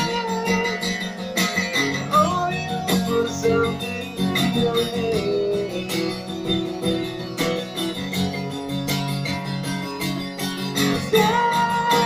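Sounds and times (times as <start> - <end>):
man singing: 0.0 - 7.6, 10.8 - 12.0
guitar strumming: 0.0 - 12.0.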